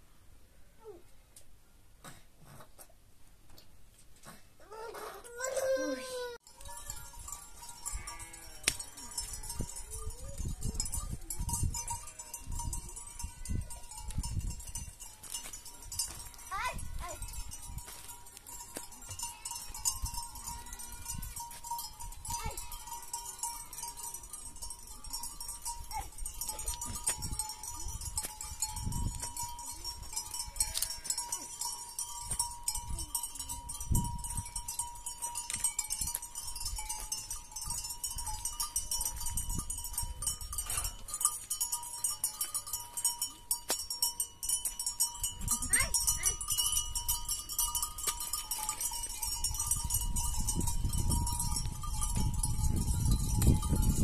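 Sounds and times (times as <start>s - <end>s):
animal bells ringing: 5.3s - 54.0s
sheep and goats bleating: 7.7s - 9.6s, 30.2s - 31.6s.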